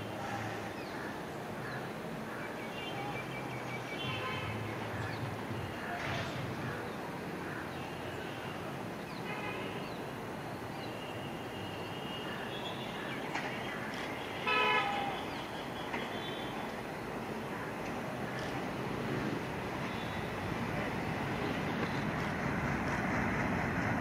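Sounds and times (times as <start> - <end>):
train horn blast: 14.4 - 15.2
diesel locomotive rumble: 15.4 - 24.0.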